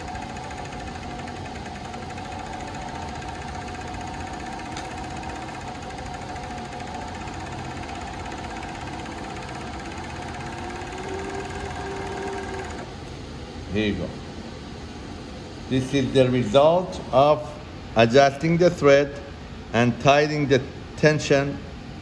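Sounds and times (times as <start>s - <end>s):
low motor tone: 0.0s - 12.9s
sewing machine running: 0.0s - 13.0s.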